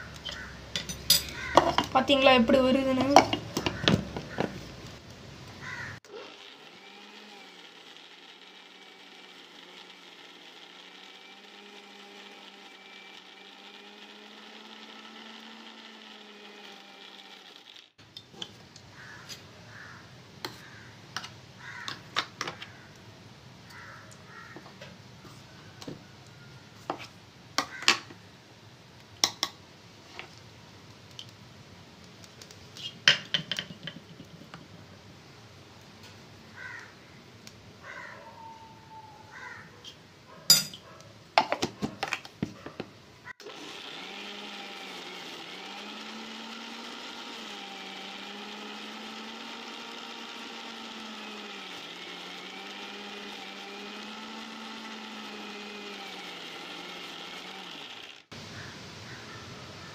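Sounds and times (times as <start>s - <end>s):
mixer-grinder motor running: 1.2s - 18.0s, 43.3s - 58.4s.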